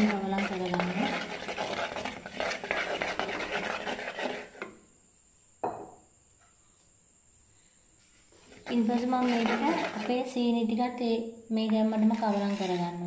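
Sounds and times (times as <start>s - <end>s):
spoon scraping a clay pot: 0.0s - 4.8s, 8.4s - 10.4s, 11.6s - 13.0s.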